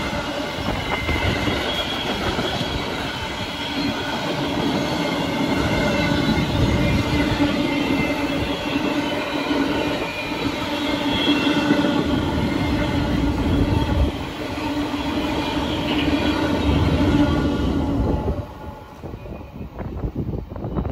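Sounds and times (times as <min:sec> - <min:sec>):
train wheels rumbling on rails: 0:00.0 - 0:20.9.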